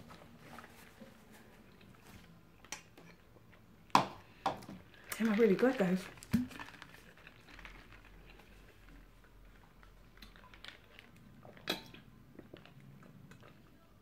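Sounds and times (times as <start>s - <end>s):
quiet chewing: 4.3s - 14.0s.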